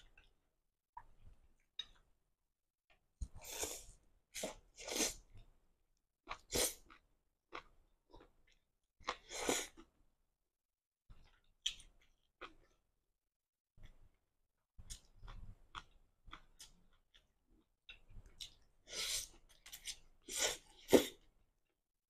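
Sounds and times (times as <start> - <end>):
soft chewing and mouth sounds: 0.0 - 2.2, 6.2 - 10.0, 11.1 - 12.9, 13.8 - 21.8
loud noodle slurps: 3.4 - 5.2.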